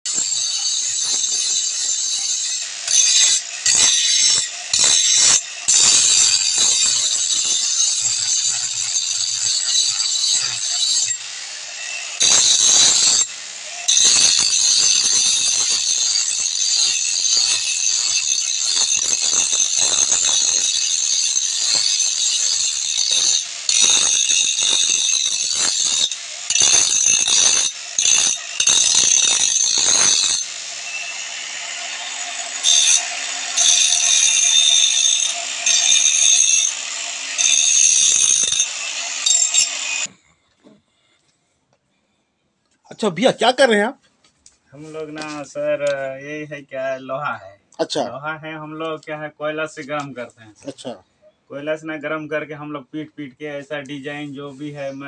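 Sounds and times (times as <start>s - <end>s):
angle grinder grinding steel: 0.1s - 40.2s.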